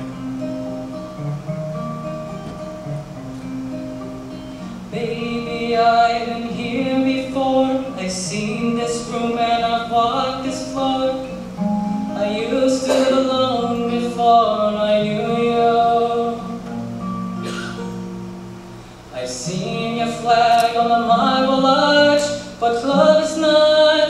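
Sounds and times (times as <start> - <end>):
acoustic guitar: 0.0 - 24.0
young man singing: 4.8 - 16.8, 19.1 - 24.0.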